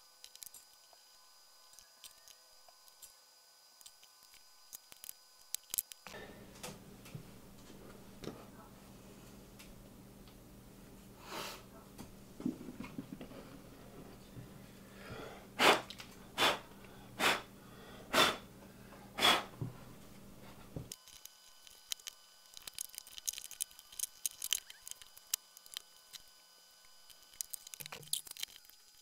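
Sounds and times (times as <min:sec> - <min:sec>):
short sharp air puffs: 0:15.6 - 0:17.5, 0:18.1 - 0:18.5, 0:19.2 - 0:19.6
plastic parts clicking and tapping: 0:20.9 - 0:26.2, 0:27.1 - 0:29.0.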